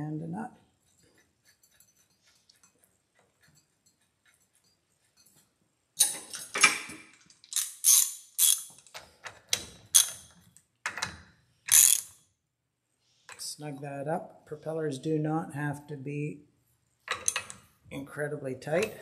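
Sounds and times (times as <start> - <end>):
hand tools clinking: 6.0 - 8.9, 17.1 - 17.6
socket ratchet clicking: 7.5 - 8.8, 11.7 - 12.1.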